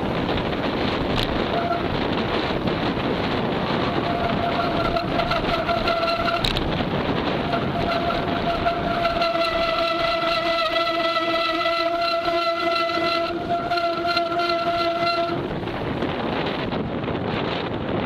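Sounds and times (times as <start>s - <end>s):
wind noise on microphone: 0.0s - 18.0s
sustained pitched tone: 3.9s - 6.6s, 7.4s - 15.5s.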